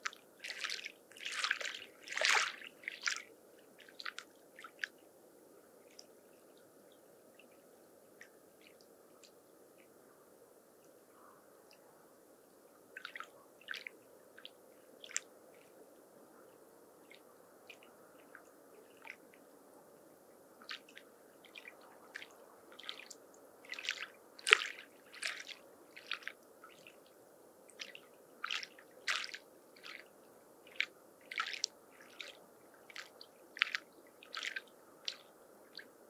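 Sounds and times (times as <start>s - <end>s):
lake waves lapping on shore: 0.0s - 4.9s, 13.0s - 13.9s, 20.7s - 27.1s, 27.7s - 35.9s.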